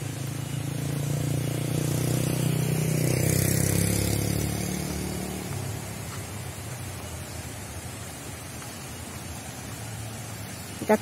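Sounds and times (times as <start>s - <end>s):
vehicle engine passing by: 0.0s - 8.4s.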